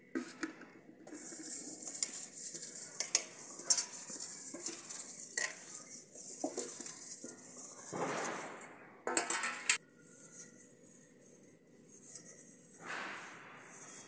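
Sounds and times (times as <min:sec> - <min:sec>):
hand rubbing oil on steel plate: 0:00.0 - 0:08.4, 0:09.1 - 0:14.0
steel plates clinking: 0:09.1 - 0:09.8.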